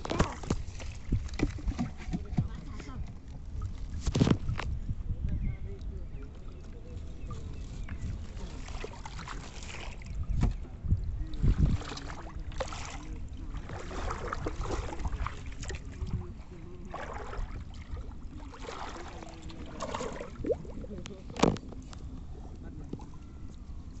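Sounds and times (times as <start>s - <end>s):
water sloshing and splashing: 0.0s - 4.8s, 5.7s - 24.0s.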